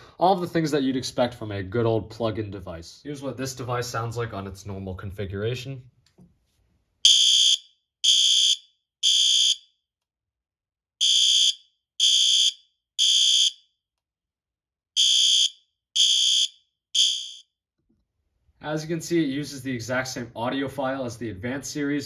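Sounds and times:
fire alarm horn blasts: 7.1s - 9.6s, 11.0s - 13.6s, 15.0s - 17.4s.

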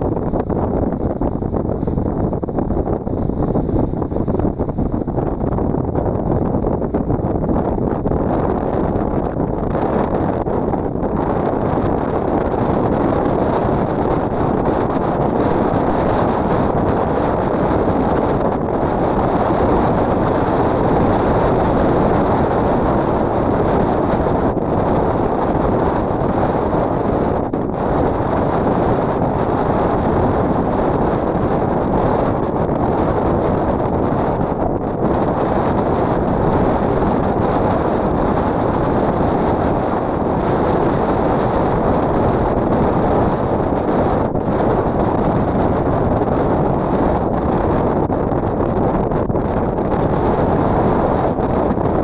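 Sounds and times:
ocean surf rushing: 0.0s - 49.2s.

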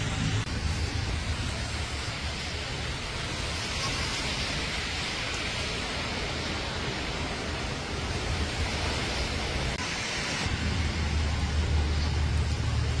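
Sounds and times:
heavy low rumble: 0.0s - 3.5s
floodwater rushing: 0.0s - 13.0s.

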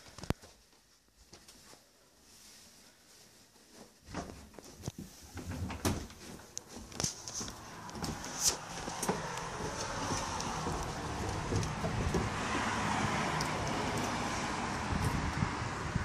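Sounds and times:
car passing: 7.5s - 16.0s.

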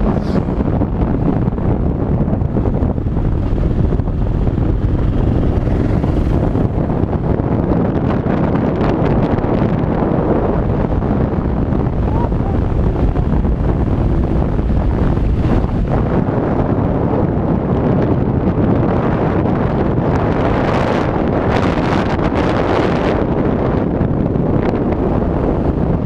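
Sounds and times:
motorcycle engine running: 0.0s - 17.5s
wind noise on microphone: 0.0s - 26.0s.

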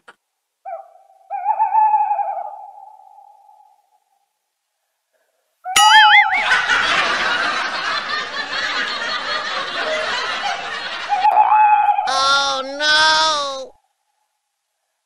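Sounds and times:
wavering comic sound effect: 5.7s - 6.8s
laugh track: 6.0s - 13.7s.

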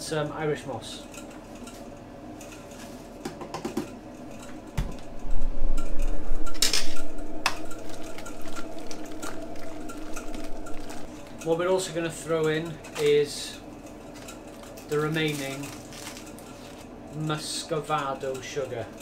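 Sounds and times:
boiling liquid: 3.9s - 17.8s.

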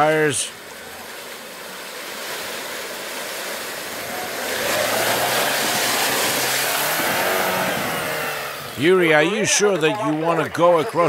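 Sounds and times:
water splashing around wheels: 0.0s - 11.0s
car engine under load: 3.8s - 9.1s.

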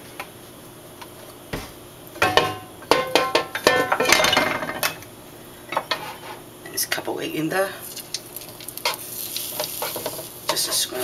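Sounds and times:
wok clanking and rattling on stove: 2.2s - 5.0s, 8.8s - 10.9s.

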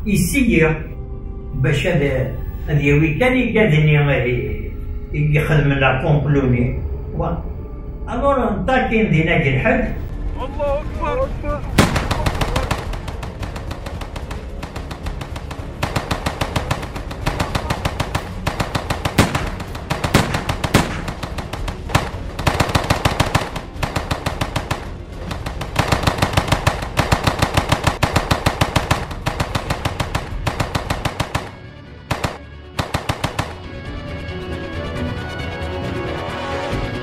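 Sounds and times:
background music: 0.0s - 37.0s
automatic gunfire: 11.8s - 33.6s.

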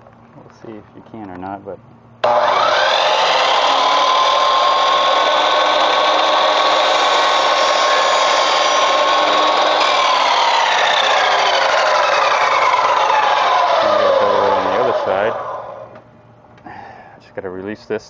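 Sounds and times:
miter saw whining: 2.2s - 16.0s.

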